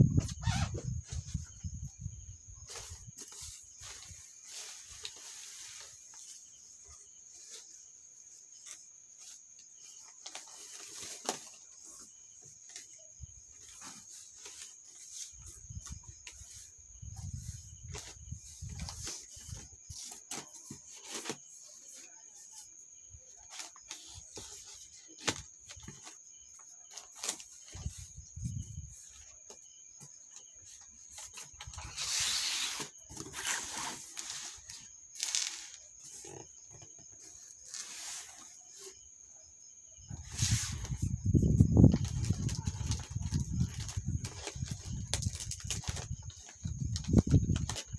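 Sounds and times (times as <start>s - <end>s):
plastic wrapping crinkling: 41.5s - 47.9s.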